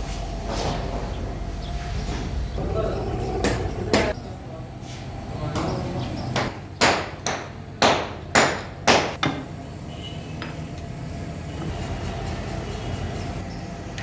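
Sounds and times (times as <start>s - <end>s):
hammer strikes on metal: 6.4s - 9.5s.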